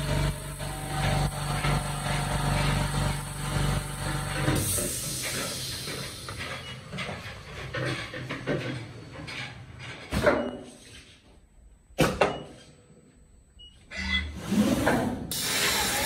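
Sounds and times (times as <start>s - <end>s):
cutting machine humming and hissing: 0.0s - 4.6s.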